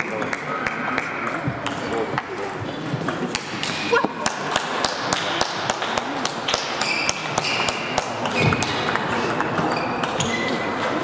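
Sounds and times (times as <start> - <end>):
distant table tennis clicks: 0.0 - 11.0.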